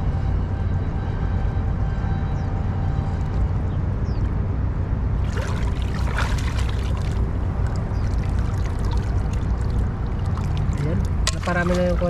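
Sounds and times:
steady low rumble: 0:00.0 - 0:12.0
water splashing and pouring: 0:05.2 - 0:12.0.

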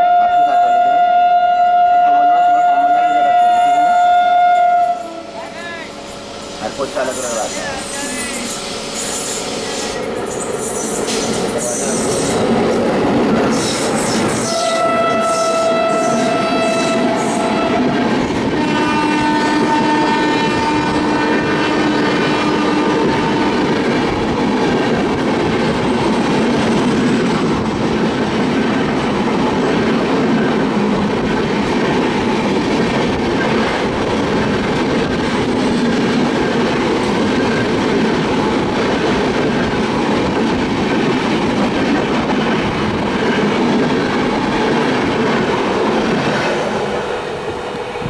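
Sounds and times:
locomotive horn: 0:00.0 - 0:05.4, 0:14.3 - 0:23.8
train wheels clattering over rails: 0:06.0 - 0:48.0.

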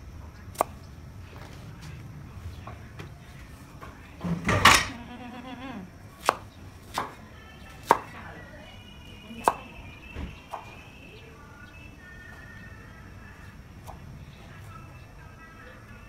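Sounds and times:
cleaver chopping on board: 0:06.2 - 0:07.2, 0:07.8 - 0:08.1.

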